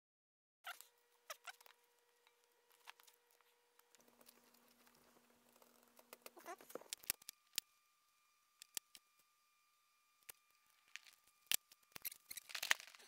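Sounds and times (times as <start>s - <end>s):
faint steady hum: 0.7s - 13.0s
sharp small clicks: 3.8s - 7.7s, 8.6s - 9.1s, 10.2s - 13.0s.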